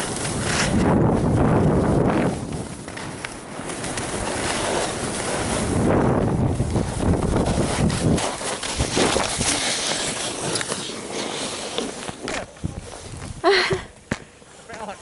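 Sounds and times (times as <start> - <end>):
wind rushing over microphone: 0.0 - 10.5, 12.2 - 13.5
skis scraping over snow: 0.0 - 13.4.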